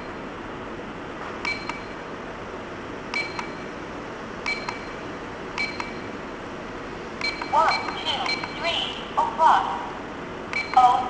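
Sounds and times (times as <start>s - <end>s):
short electronic beeps: 7.2s - 8.7s, 10.6s - 10.9s.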